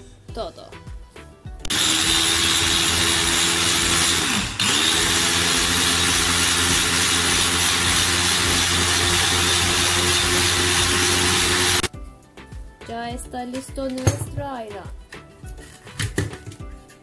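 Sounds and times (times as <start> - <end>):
electric chopper motor running: 1.6 - 11.9.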